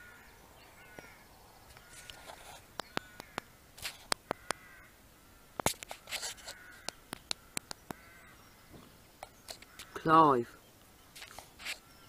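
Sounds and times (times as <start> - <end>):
crows cawing: 0.0 - 10.5
sharp clicks: 1.8 - 4.6, 5.6 - 8.0.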